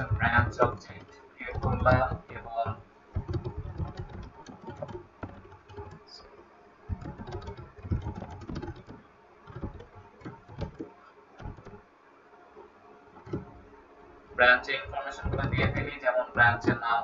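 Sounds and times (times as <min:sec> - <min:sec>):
typing on keyboard: 0:00.0 - 0:06.1, 0:06.9 - 0:11.8, 0:13.2 - 0:13.5, 0:14.8 - 0:16.8.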